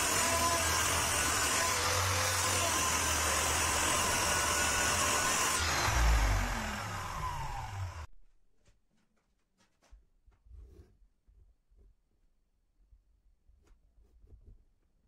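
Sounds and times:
miter saw cutting board: 0.0 - 8.1.

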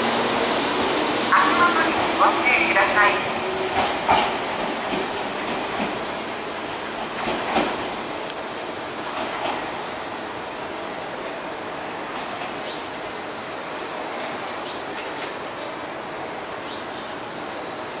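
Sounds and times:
train pulling away: 0.0 - 16.5.

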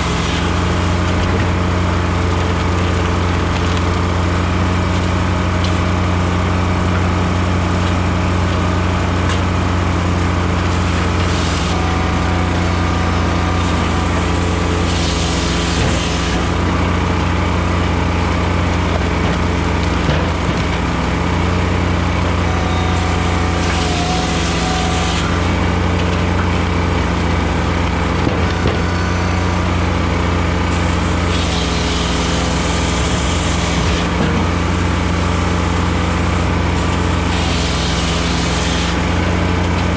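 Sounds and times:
firewood processor running: 0.0 - 39.9
hissing rush: 10.6 - 16.6.

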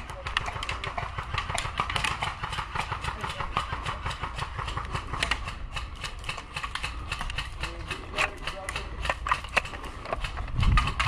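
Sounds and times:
airsoft guns firing: 0.0 - 11.0
wind on microphone: 10.3 - 11.0.

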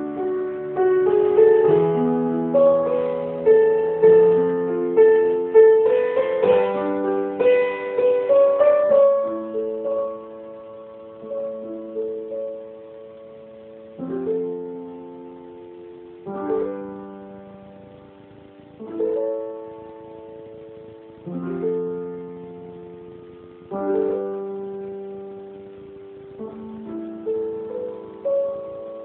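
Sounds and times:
grand piano chords: 0.0 - 29.0.

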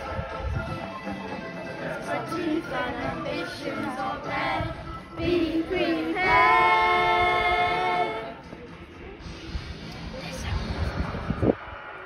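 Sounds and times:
voices singing: 0.0 - 8.6
backing track: 0.0 - 9.5.

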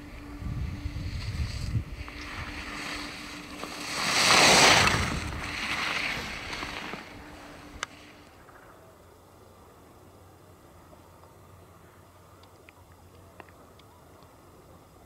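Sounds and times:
wind rumble on microphone: 0.0 - 8.0
skis carving on hard snow: 0.1 - 8.6.

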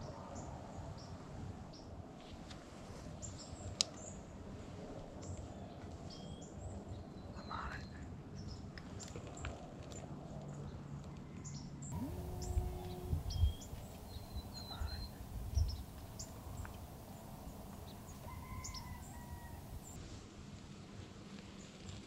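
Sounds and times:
dull low thumps: 12.0 - 20.0
bird chirps and whistles: 12.4 - 16.3.

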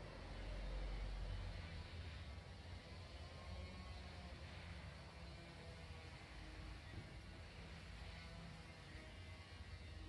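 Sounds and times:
faint low rumble and hiss: 0.0 - 10.0.

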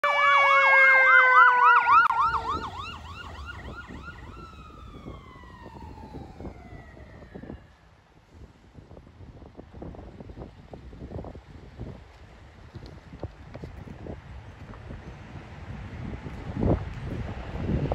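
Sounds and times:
falling siren tone: 0.0 - 7.8
fire engine siren yelping: 0.0 - 7.8
steady siren tone sliding lower: 0.0 - 7.8
low rumble of passing vehicles: 0.2 - 17.9.

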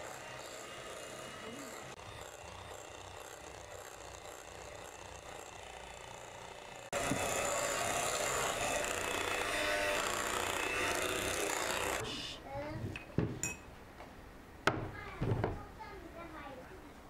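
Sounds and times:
electric hand mixer whirring: 0.0 - 12.1.

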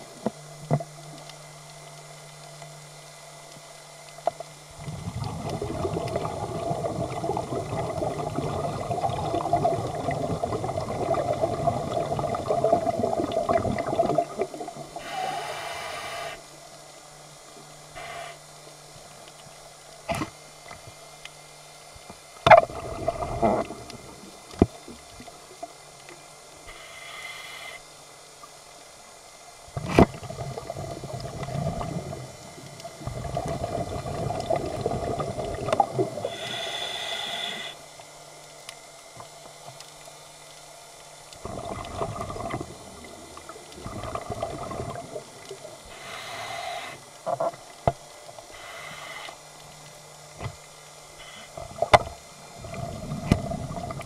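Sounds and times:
exhaled bubbles underwater: 4.7 - 15.3, 22.5 - 25.9, 29.7 - 36.5, 41.4 - 46.0, 51.6 - 54.0
regulator hissing inhalations: 15.0 - 16.5, 17.9 - 18.4, 26.6 - 27.8, 36.2 - 37.9, 45.8 - 47.2, 48.5 - 49.4.

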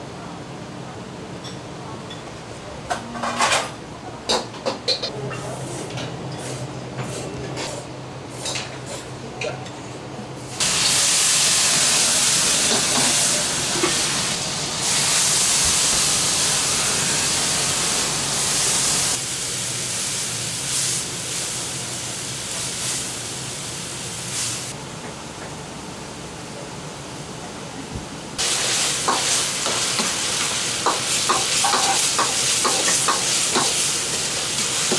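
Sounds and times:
wok sizzling: 10.5 - 24.8, 28.4 - 34.9.

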